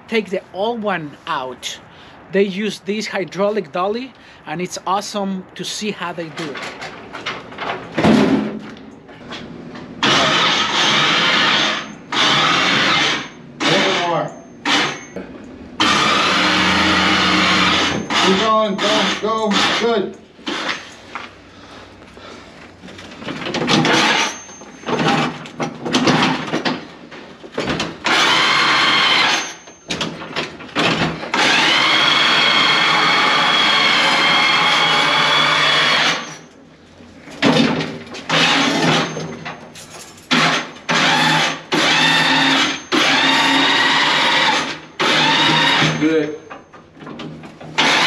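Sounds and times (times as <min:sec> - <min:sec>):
dolly motor whining: 0:06.6 - 0:15.2, 0:15.8 - 0:21.3, 0:22.8 - 0:36.6, 0:37.2 - 0:48.0.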